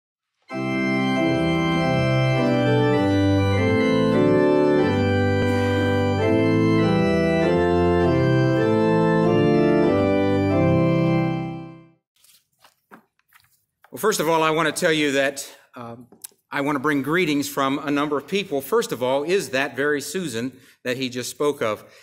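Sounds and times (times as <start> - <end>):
organ playing held chords: 0.4 - 12.0.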